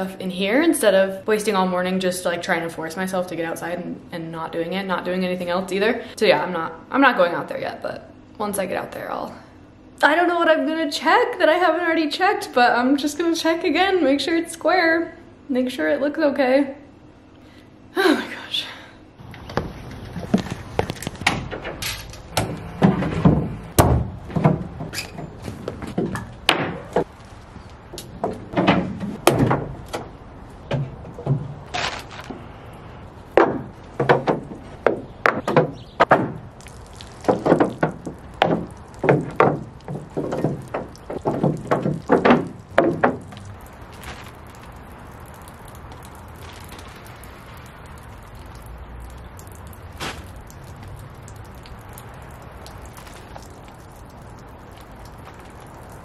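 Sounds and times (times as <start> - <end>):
knocks of plywood panels: 22.3 - 27.1, 28.0 - 31.6, 33.4 - 36.5, 37.2 - 43.5.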